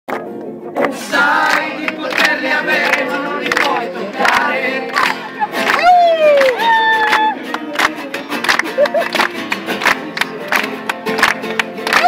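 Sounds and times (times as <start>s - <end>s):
crowd singing in chorus: 0.7s - 5.6s.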